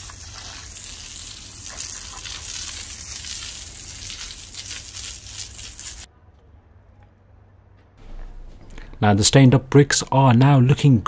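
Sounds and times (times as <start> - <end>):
hose spraying water on bricks: 0.0 - 6.1.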